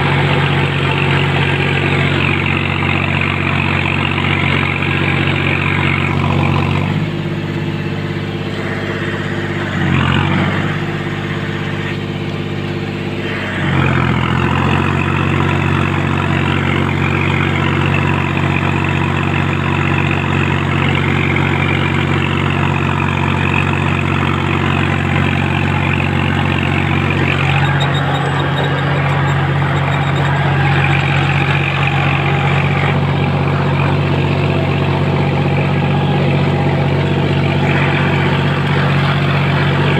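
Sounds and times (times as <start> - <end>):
diesel tractor engine running: 0.0 - 39.9.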